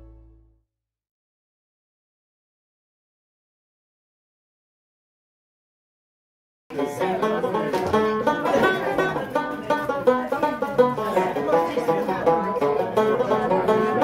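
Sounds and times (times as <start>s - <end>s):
banjo playing lively tune: 6.7s - 14.0s.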